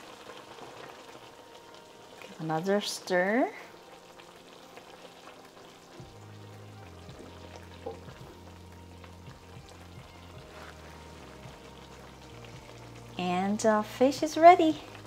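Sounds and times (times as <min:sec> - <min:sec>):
sauce simmering in a wok: 0:00.0 - 0:15.0
soft background music: 0:00.0 - 0:15.0
wooden spatula scraping: 0:10.2 - 0:11.4.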